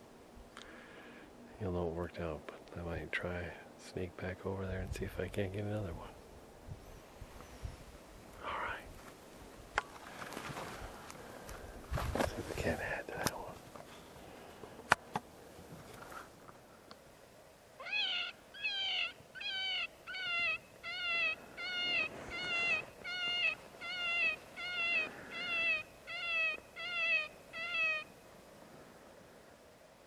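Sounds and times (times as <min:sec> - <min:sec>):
predator call distress cries: 0:17.8 - 0:28.2.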